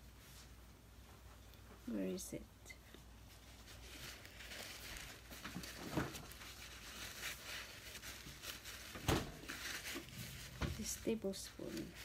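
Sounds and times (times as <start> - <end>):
paper towel rustling: 3.0 - 12.0.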